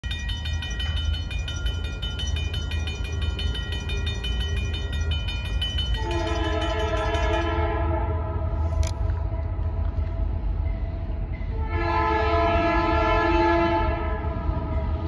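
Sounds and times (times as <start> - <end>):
crossing bells ringing rapidly: 0.0 - 7.9
locomotive air horn blast: 6.0 - 8.8, 11.6 - 14.4.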